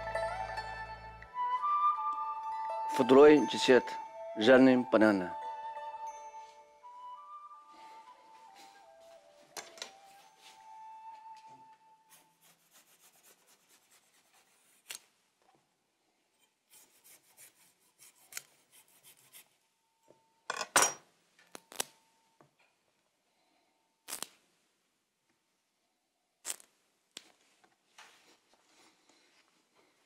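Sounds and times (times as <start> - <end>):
knife cutting banana stem: 14.4 - 15.1, 16.7 - 19.5.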